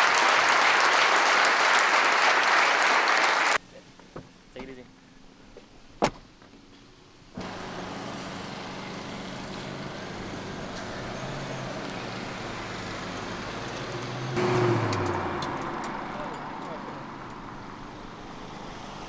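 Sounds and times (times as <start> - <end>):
car engine running: 7.4 - 18.6.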